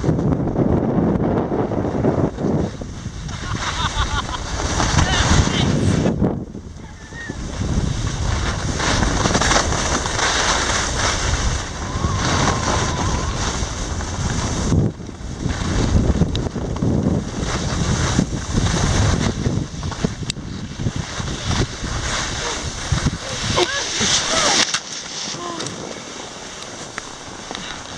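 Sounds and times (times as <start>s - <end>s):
skis scraping over snow: 0.0s - 27.9s
wind buffeting microphone: 0.0s - 27.9s.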